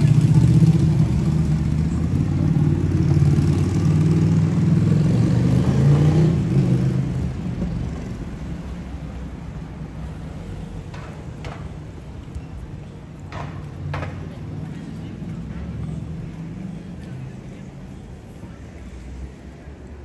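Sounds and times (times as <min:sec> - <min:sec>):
vehicle engine passing: 0:00.0 - 0:09.1
street noise: 0:00.0 - 0:20.0.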